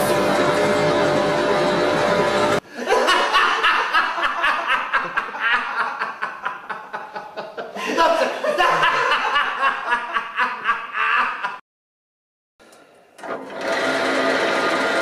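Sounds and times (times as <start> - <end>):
background music: 0.0 - 2.6
man laughing: 2.7 - 11.6.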